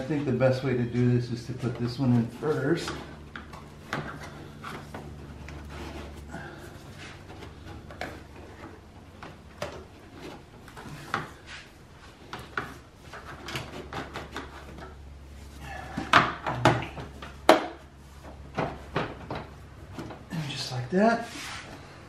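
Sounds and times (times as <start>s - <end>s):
steady low hum: 0.0s - 22.0s
plastic ducting clicks and knocks: 16.0s - 20.3s.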